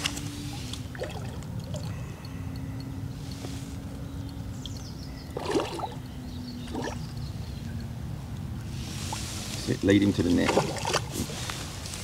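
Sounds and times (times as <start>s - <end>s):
fish splashing at surface: 5.4s - 6.0s, 10.4s - 11.3s.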